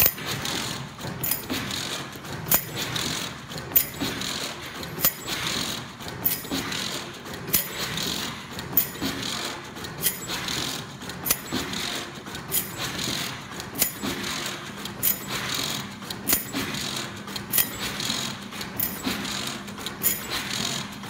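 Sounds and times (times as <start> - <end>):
sharp metallic clack: 0.0 - 0.6, 1.2 - 1.9, 2.5 - 3.1, 3.7 - 20.8
wire netting machine rattling: 0.0 - 21.0
light mechanical ticks: 7.3 - 21.0.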